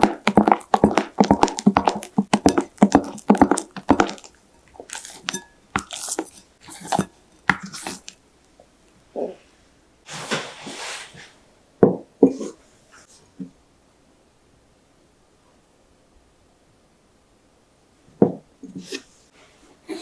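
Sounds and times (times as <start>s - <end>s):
batter mixed in glass bowl: 0.0s - 8.2s
soft scraping and rustling: 9.4s - 11.4s.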